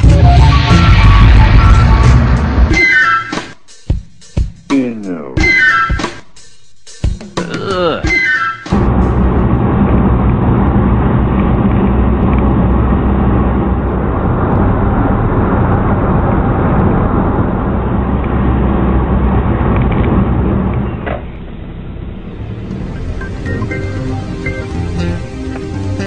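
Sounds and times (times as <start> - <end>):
car engine drone: 0.0 - 2.9, 8.7 - 26.0.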